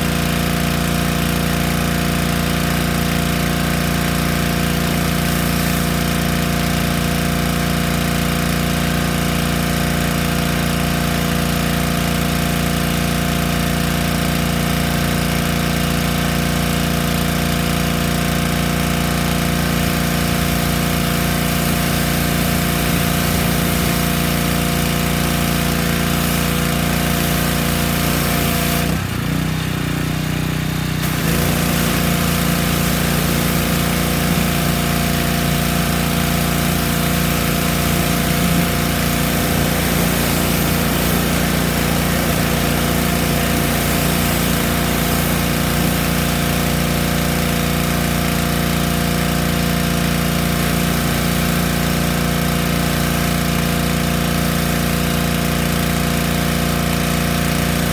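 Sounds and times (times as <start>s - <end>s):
pressure washer engine running: 0.0s - 57.9s
hissing water jet: 0.2s - 10.5s, 16.6s - 29.2s, 31.0s - 57.9s.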